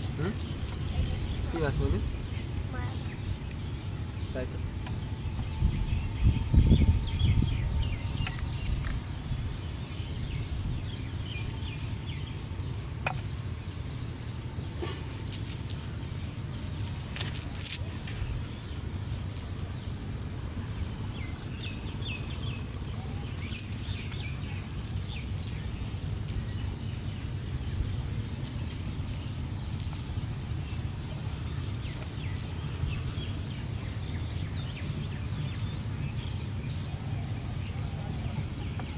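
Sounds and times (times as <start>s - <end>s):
low rumble: 0.0s - 14.7s
birds chirping: 0.0s - 38.9s.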